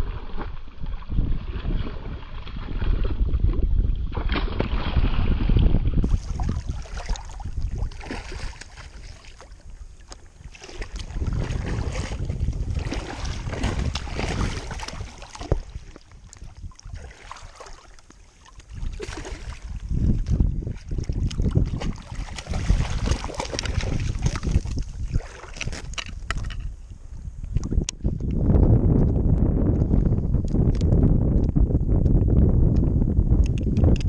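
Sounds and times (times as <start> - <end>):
fish thrashing in water: 0.0 - 9.8, 10.4 - 26.0
wind rumble on microphone: 0.0 - 34.0.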